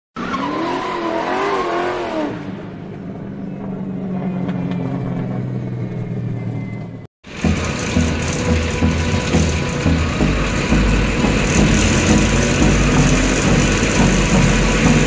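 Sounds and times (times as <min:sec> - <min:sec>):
car engine revving: 0:07.2 - 0:15.0.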